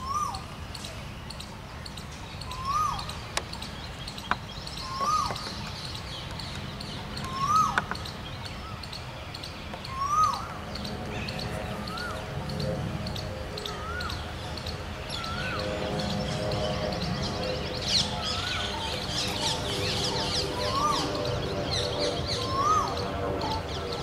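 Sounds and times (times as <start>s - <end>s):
bird calling rising note: 4.8s - 5.6s, 7.2s - 8.8s, 9.9s - 24.0s.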